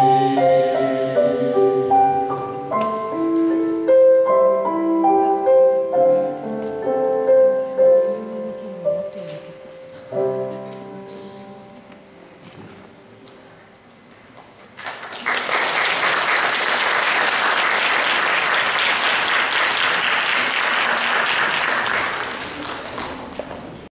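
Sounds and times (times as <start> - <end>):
audience applauding: 14.4 - 23.8.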